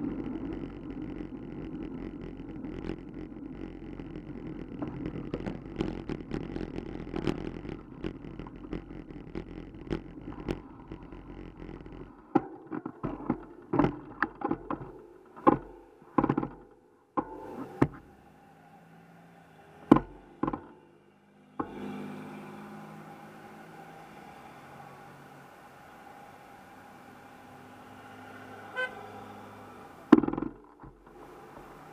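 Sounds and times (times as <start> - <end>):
bicycle road rumble and rattling: 0.0 - 31.9
passing car traffic hum: 17.4 - 31.9.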